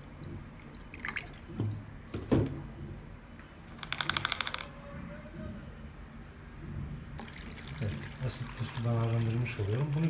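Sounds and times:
water pouring and dripping into tub: 0:00.0 - 0:03.2, 0:07.2 - 0:10.0
plastic tub clicks: 0:03.8 - 0:04.7.

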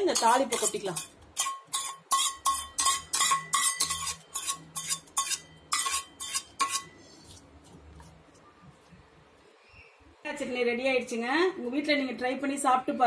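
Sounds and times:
metal spoon clinking on pan: 0:00.0 - 0:07.0.

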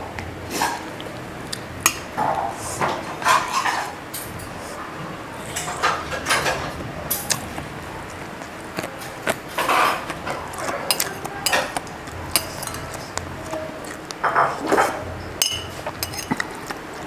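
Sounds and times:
chewing and mouth noise: 0:00.2 - 0:02.8, 0:05.4 - 0:17.0
spoon clinking on a ceramic plate: 0:10.9 - 0:13.0, 0:14.2 - 0:16.5.

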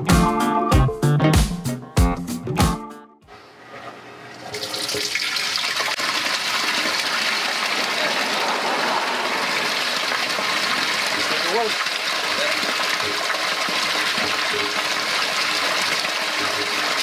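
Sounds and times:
water pouring and splashing: 0:04.4 - 0:17.0.

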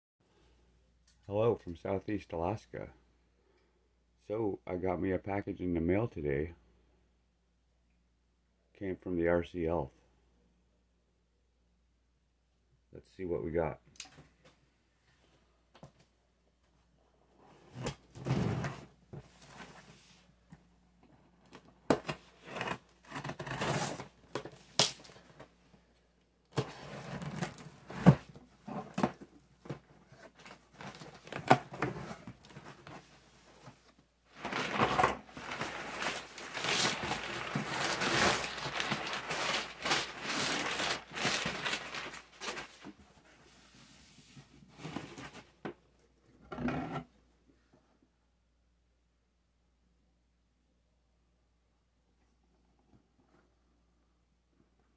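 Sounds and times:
rustling and crinkling: 0:14.4 - 0:45.8
tape tearing: 0:21.9 - 0:25.2, 0:34.4 - 0:42.8.

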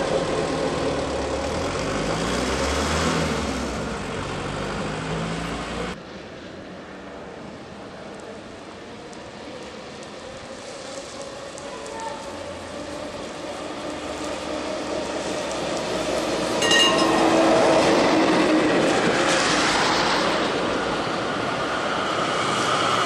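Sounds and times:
tram passing on rails: 0:00.0 - 0:23.0
brief metallic ring: 0:16.6 - 0:17.2.

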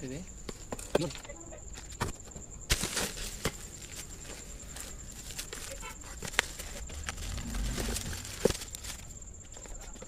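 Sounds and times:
packaging rustling: 0:04.7 - 0:09.2.

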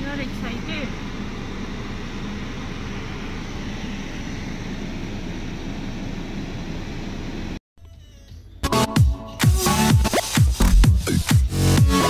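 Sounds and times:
low hum: 0:00.0 - 0:07.6.

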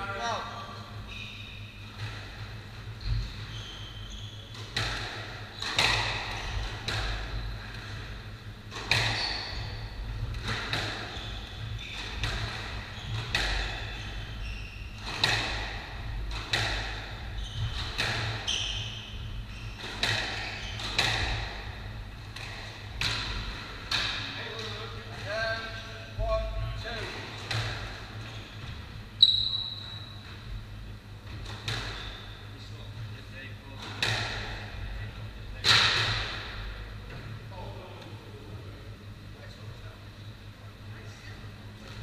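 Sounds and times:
steady low hum: 0:00.0 - 0:42.0
shoes squeaking on wooden floor: 0:02.9 - 0:07.7, 0:08.7 - 0:15.6, 0:16.3 - 0:21.6
squash ball hits echoing: 0:04.6 - 0:14.3, 0:14.9 - 0:28.2, 0:31.2 - 0:32.0, 0:33.8 - 0:34.8.

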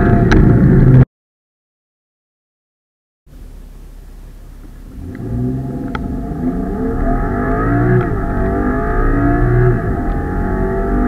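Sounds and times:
car engine accelerating hard: 0:03.3 - 0:11.0.

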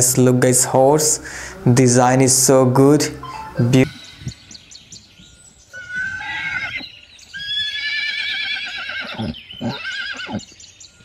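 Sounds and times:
horse whinnying: 0:05.7 - 0:10.5.

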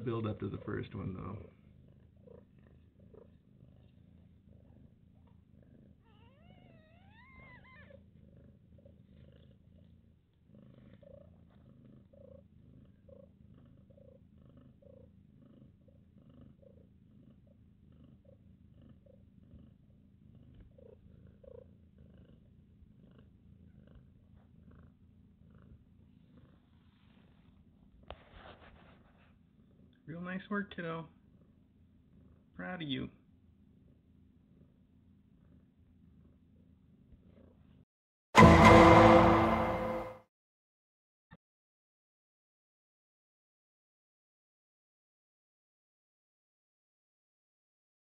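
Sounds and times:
cat purring softly: 0:00.0 - 0:37.9
faint kitten squeaks: 0:02.1 - 0:09.9.

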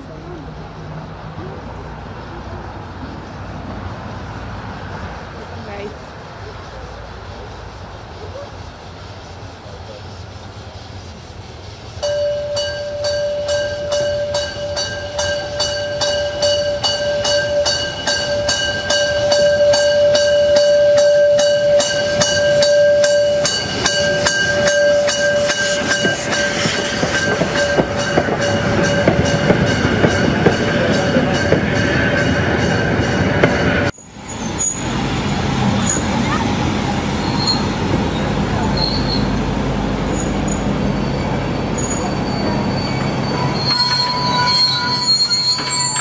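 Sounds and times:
train clatter over rail joints: 0:00.5 - 0:46.0
steam hiss: 0:01.7 - 0:31.0.

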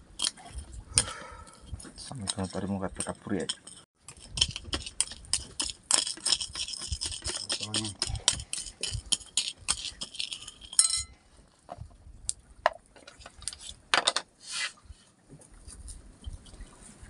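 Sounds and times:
spoon clinking on ceramic plate: 0:08.5 - 0:11.1.

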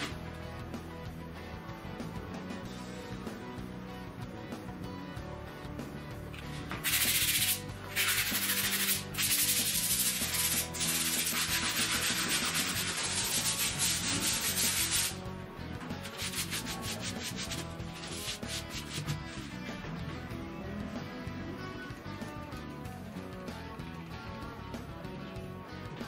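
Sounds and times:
background music: 0:00.0 - 0:26.0
sanding sponge on wood: 0:06.8 - 0:15.2, 0:16.1 - 0:19.6
cloth wiping board: 0:16.0 - 0:19.6.

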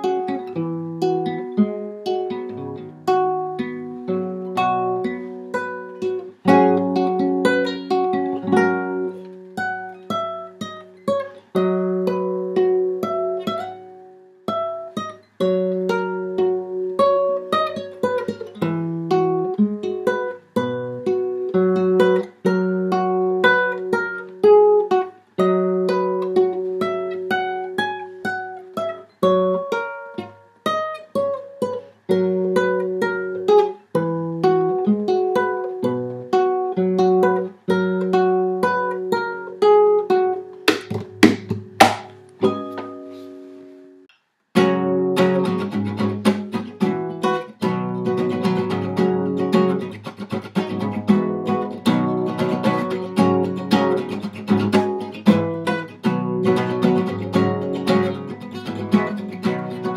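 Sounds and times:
strummed guitar chords: 0:00.0 - 0:10.9, 0:44.6 - 0:59.9
fingerstyle classical guitar: 0:00.0 - 0:59.9.

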